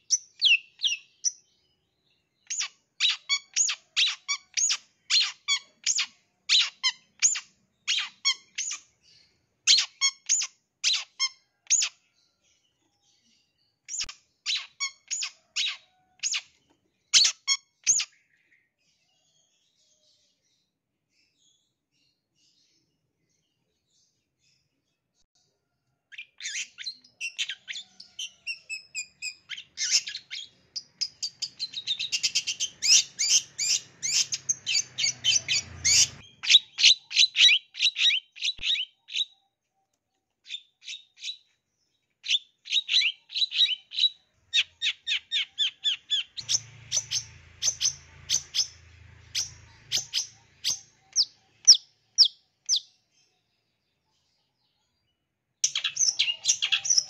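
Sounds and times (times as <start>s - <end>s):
bird chirping high sharp notes: 26.4s - 37.9s, 44.6s - 52.8s.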